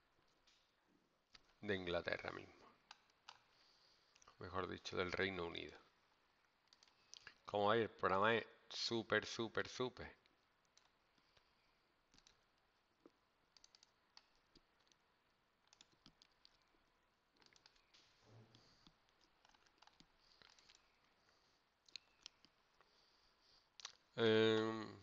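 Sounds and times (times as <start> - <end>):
faint computer mouse clicks: 12.1 - 15.0.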